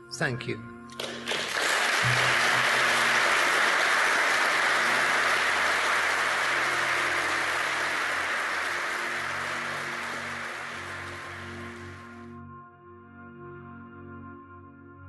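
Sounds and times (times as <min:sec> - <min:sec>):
audience applauding: 0:00.9 - 0:12.2.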